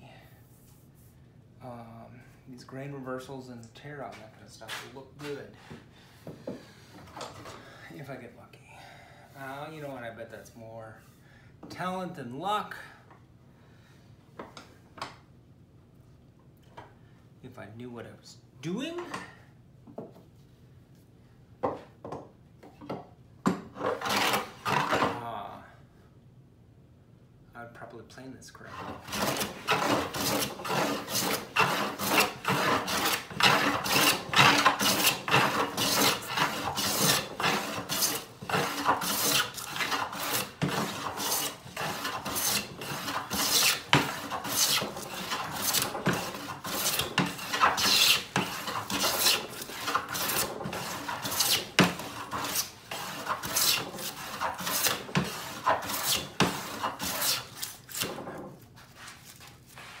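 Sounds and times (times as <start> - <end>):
hand plane shaving wood: 23.8 - 25.2, 28.7 - 58.2.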